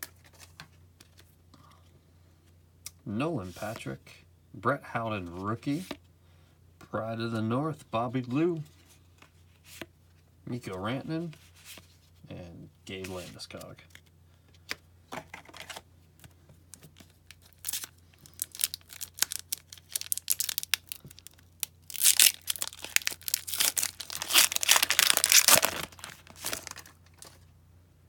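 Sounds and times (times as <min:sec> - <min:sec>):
foil wrapper crinkling: 0:16.9 - 0:27.4
wrapper tearing: 0:17.3 - 0:27.4.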